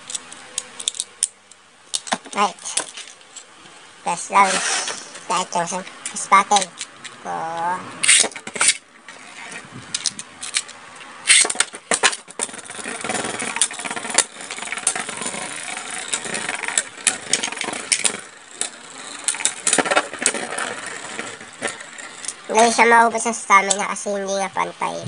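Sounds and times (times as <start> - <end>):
spinning tops clacking: 4.1 - 6.9, 7.6 - 24.0
spinning tops whirring on plastic: 4.3 - 7.2, 8.0 - 24.0.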